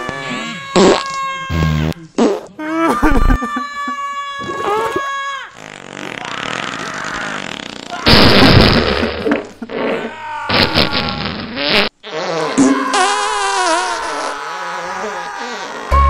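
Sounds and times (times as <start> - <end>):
fart sound effects: 0.2 - 2.5, 5.6 - 14.3.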